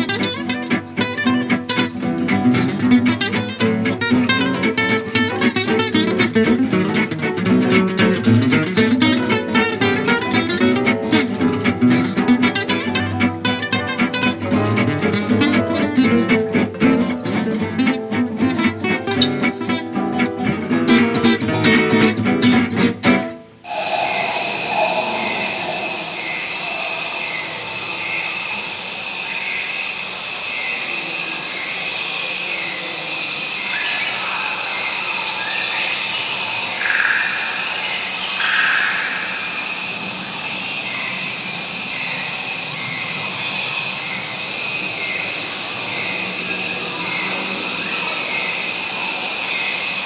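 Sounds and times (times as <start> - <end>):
louder animal calls: 23.7 - 41.2
hiss of insects and frogs: 23.7 - 50.0.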